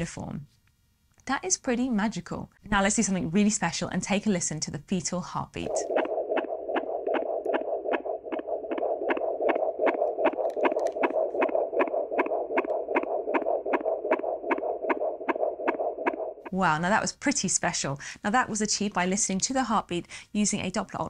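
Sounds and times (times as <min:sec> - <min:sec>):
fetal heartbeat pulse from speaker: 0:05.6 - 0:16.6
steady hum: 0:05.6 - 0:16.8.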